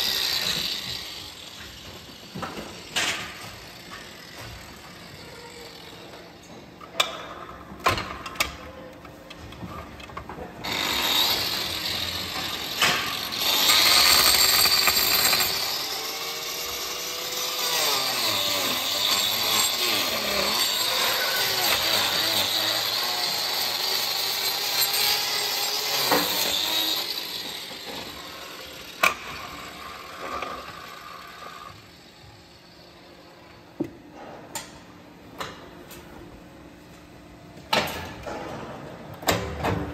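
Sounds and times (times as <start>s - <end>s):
power tool grinding: 0.0s - 5.9s, 10.6s - 32.2s.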